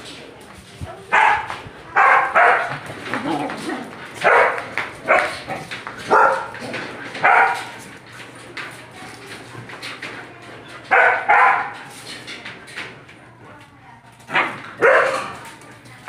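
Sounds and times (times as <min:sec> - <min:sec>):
dog barking: 0:01.1 - 0:02.8, 0:04.2 - 0:06.6, 0:07.2 - 0:07.8, 0:10.9 - 0:11.8, 0:14.3 - 0:15.4.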